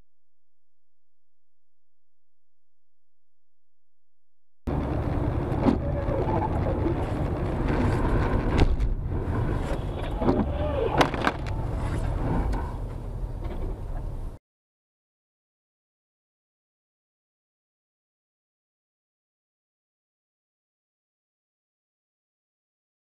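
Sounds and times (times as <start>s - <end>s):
car driving rumble from inside: 4.7s - 14.4s.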